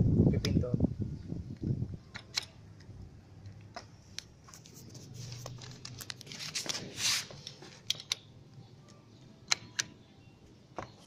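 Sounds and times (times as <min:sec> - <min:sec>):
rustling scrape: 0:04.4 - 0:07.8.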